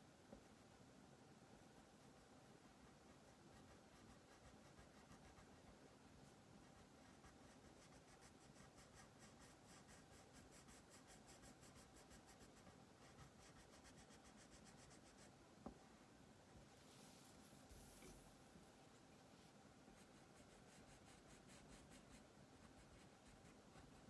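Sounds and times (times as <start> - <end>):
crayon scratching on paper: 6.7 - 15.3.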